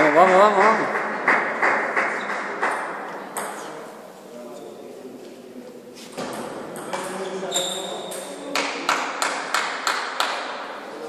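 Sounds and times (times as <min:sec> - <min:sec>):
table tennis ball bouncing: 0:00.0 - 0:03.6, 0:06.2 - 0:07.2.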